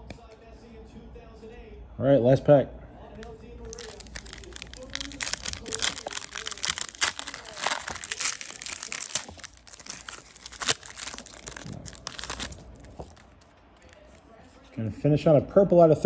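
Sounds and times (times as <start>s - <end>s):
foil wrapper tearing and crinkling: 3.6s - 14.3s.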